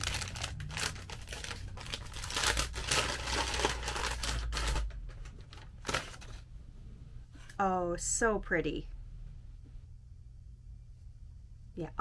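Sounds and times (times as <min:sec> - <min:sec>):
paper crinkling and rustling: 0:00.0 - 0:06.5.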